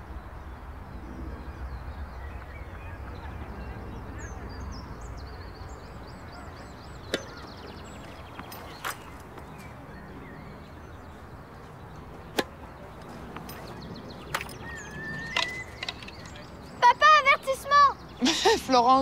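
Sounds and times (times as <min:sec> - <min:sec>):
birds chirping: 0:00.0 - 0:19.0
tennis ball strike: 0:07.0 - 0:09.1, 0:12.2 - 0:12.7.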